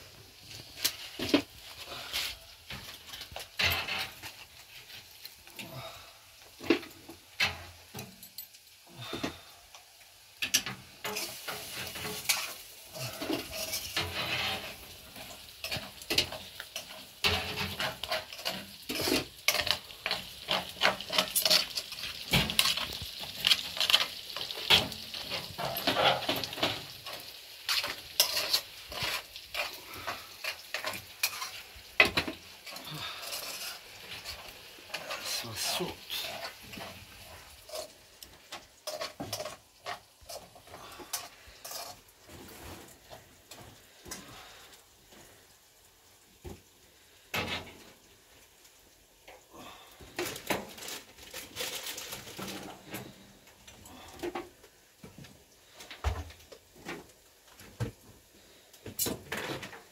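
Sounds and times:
food sizzling in a frying pan: 0.0s - 59.9s
metal utensil scraping and stirring: 10.3s - 44.6s.

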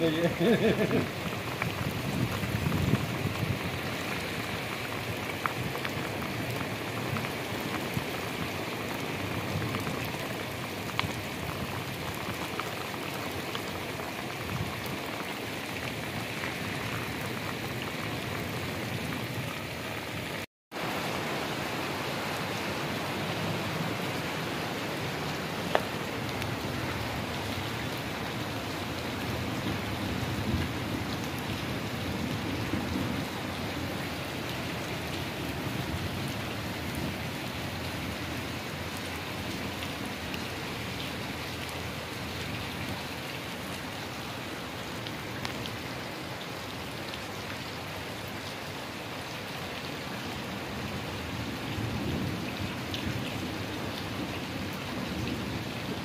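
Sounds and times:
close raindrops ticking: 0.0s - 19.5s, 24.0s - 47.6s
heavy rain pouring: 0.0s - 56.0s.

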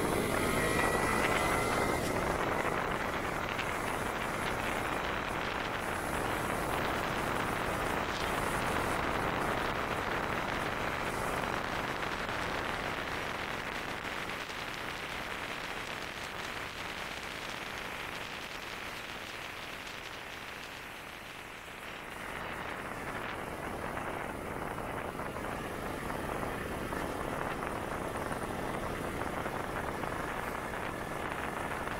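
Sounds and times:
wind rushing: 0.0s - 10.3s
motorcycle road noise: 0.0s - 31.9s.

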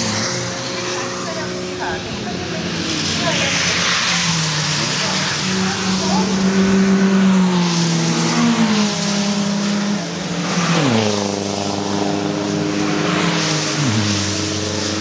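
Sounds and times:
race car engines passing: 0.0s - 15.0s
tyres hissing on wet tarmac: 10.4s - 15.0s.

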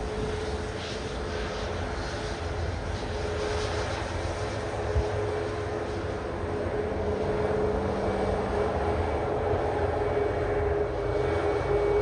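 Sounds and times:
jet engines rumbling at low power: 0.0s - 12.0s.

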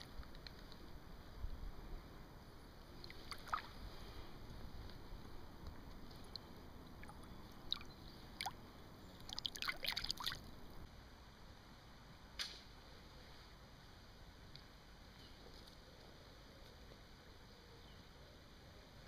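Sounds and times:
river water dripping and splashing: 2.9s - 5.0s, 5.6s - 10.8s
water plinks: 3.0s - 3.8s, 6.0s - 10.8s.

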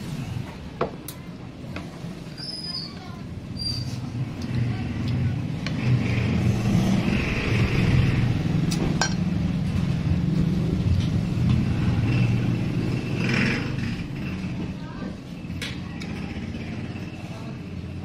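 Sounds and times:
tableware clinking: 9.0s - 9.3s.

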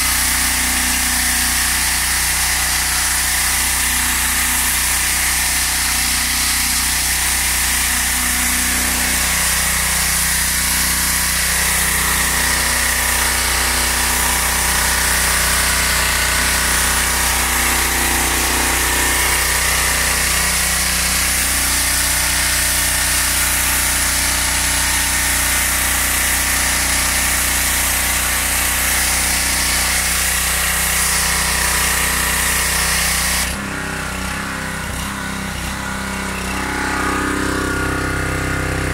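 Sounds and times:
high-pressure water jet hissing: 0.0s - 38.9s
pressure washer engine: 0.0s - 38.9s.

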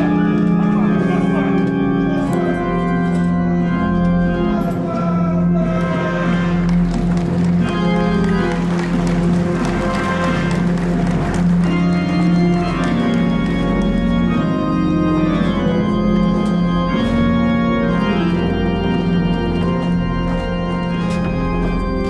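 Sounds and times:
organ chords: 0.0s - 22.0s.

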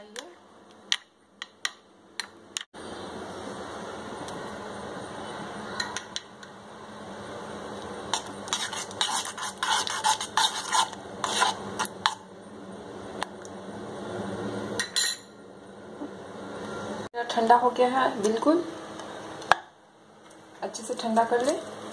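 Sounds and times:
metal spoon scraping saucepan: 8.1s - 12.2s.

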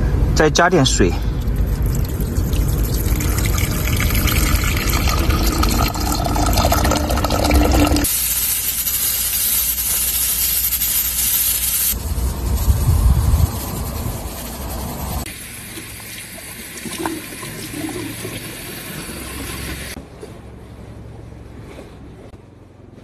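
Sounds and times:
water pouring into pot: 1.5s - 8.2s, 15.4s - 20.0s
steam hissing from valve: 2.6s - 20.0s.

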